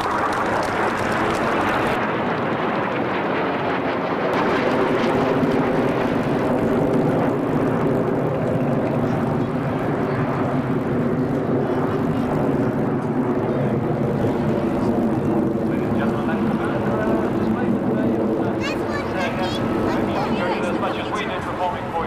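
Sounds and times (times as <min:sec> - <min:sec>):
jet engines roaring overhead: 0:00.0 - 0:22.0.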